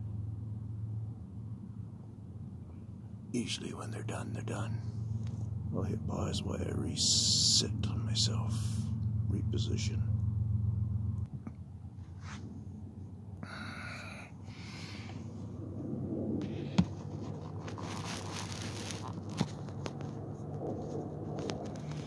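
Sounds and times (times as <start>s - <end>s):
camera handling scraping and rustling: 16.4s - 22.0s.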